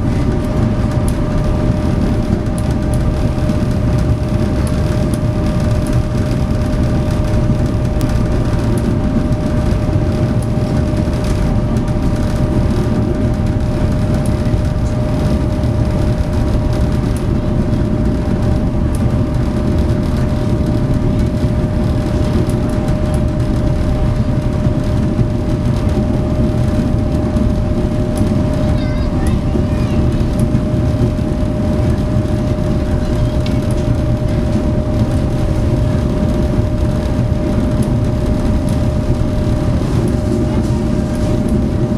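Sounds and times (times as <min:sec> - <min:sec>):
ferry engines rumbling: 0:00.0 - 0:41.9
steady hum tone: 0:00.0 - 0:41.9.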